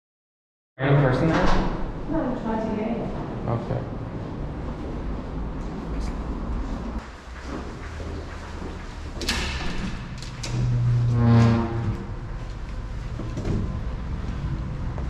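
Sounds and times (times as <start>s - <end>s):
door groaning: 9.2s - 13.8s.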